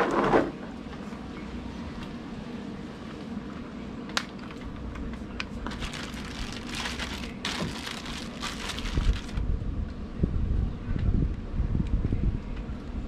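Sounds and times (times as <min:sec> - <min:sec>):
plastic bag crinkling: 0:05.6 - 0:09.4
wind buffeting microphone: 0:05.8 - 0:13.0.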